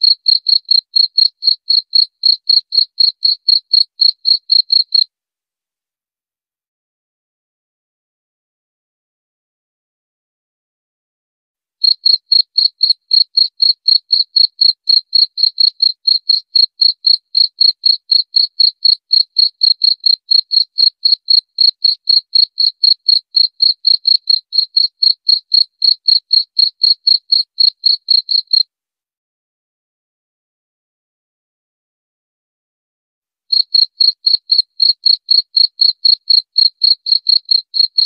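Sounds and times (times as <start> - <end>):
cricket chirping: 0.0 - 5.1, 11.8 - 28.6, 33.5 - 38.0.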